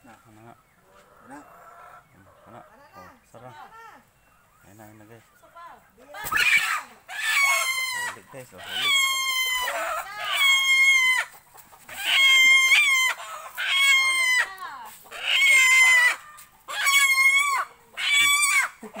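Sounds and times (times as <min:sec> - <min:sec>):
chicken squawking in distress: 0:06.3 - 0:18.8.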